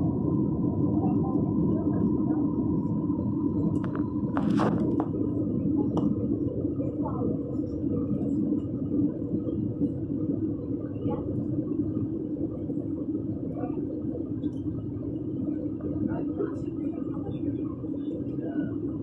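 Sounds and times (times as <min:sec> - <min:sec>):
airliner cabin drone: 0:00.0 - 0:19.0
faint murmur of voices: 0:00.6 - 0:09.4, 0:13.3 - 0:14.4, 0:15.0 - 0:19.0.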